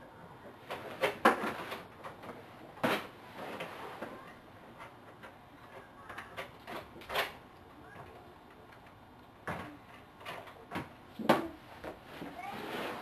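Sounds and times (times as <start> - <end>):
small rustles: 11.7 - 13.0.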